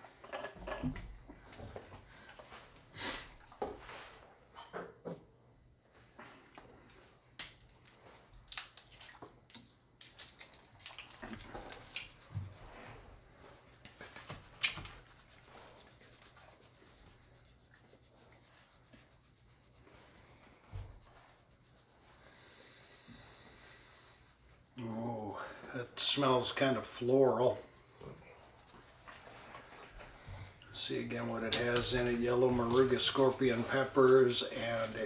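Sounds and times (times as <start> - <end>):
hands rubbing and rustling: 10.0 - 35.0.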